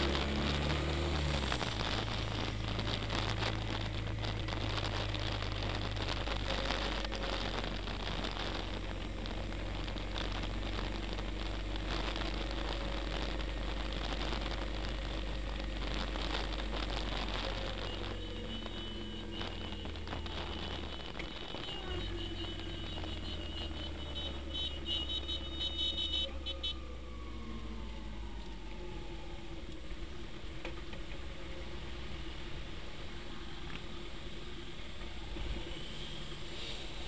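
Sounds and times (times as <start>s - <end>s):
low engine hum: 0.0s - 37.0s
wind and road noise: 0.0s - 37.0s.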